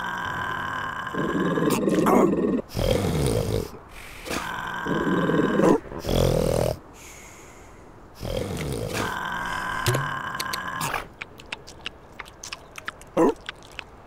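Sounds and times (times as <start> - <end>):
cartoon seal snoring: 0.0 - 6.8, 8.2 - 11.2.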